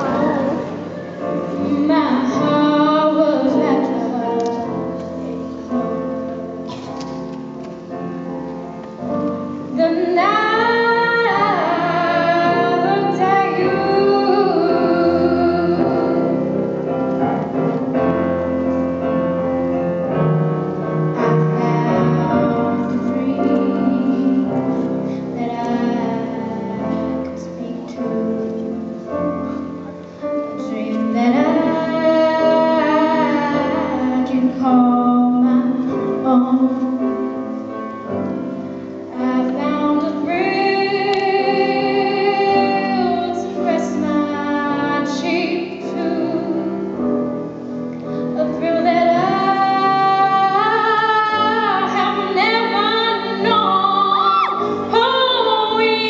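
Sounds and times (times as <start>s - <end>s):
woman singing into a microphone: 0.0s - 6.6s, 9.6s - 16.7s, 21.1s - 29.0s, 30.2s - 37.3s, 39.1s - 47.2s, 48.2s - 56.0s
instrumental accompaniment: 0.0s - 56.0s.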